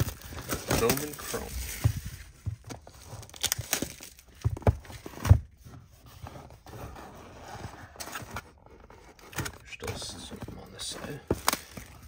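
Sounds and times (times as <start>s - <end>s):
plastic wrap crinkling and tearing: 0.0s - 4.4s.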